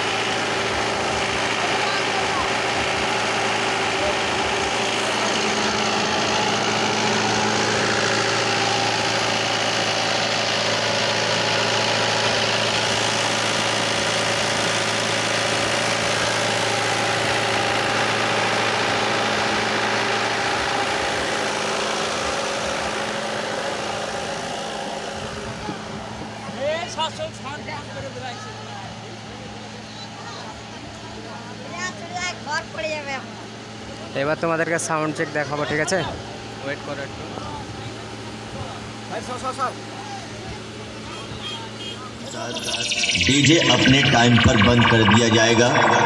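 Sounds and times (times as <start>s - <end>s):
generator engine humming: 0.0s - 23.3s, 41.7s - 46.0s.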